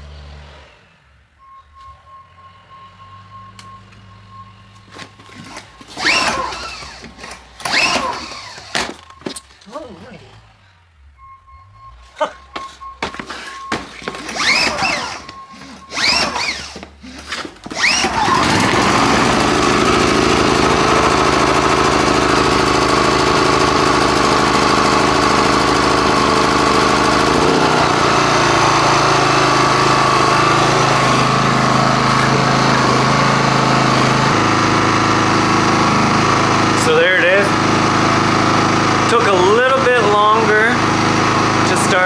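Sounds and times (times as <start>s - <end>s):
generator engine running: 4.9s - 9.2s, 13.6s - 42.0s
recoil starter pulls: 5.0s - 9.6s, 13.3s - 42.0s.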